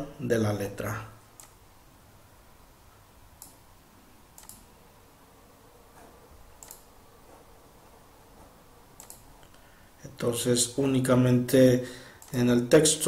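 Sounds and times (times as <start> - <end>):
low room noise: 0.0 - 13.0
computer mouse clicks: 1.4 - 1.6, 3.4 - 3.6, 4.4 - 4.7, 6.6 - 6.9, 9.0 - 9.6, 12.2 - 12.4.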